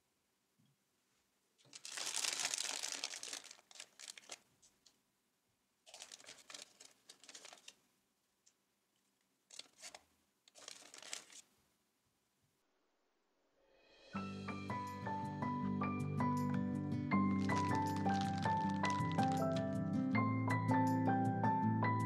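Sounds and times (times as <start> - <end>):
plastic bag crinkling: 1.6 - 4.8, 5.9 - 7.8, 9.5 - 11.5, 17.4 - 19.8.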